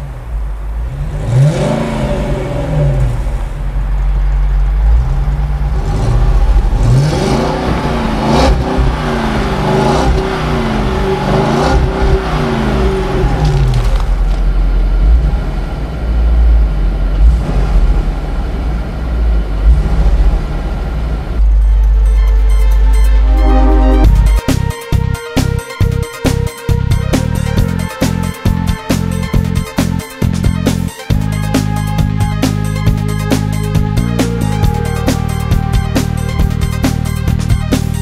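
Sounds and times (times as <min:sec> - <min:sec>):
car engine revving: 0:00.0 - 0:21.6.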